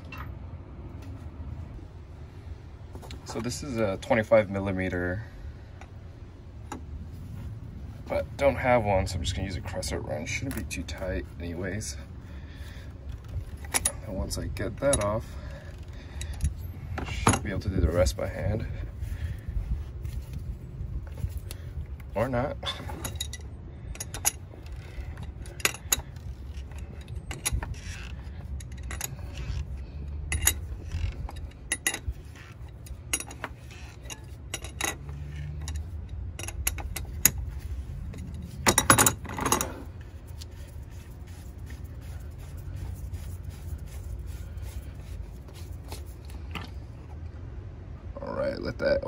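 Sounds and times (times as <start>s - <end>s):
wrench clinking and scraping on metal: 0.0s - 0.4s, 12.7s - 47.1s.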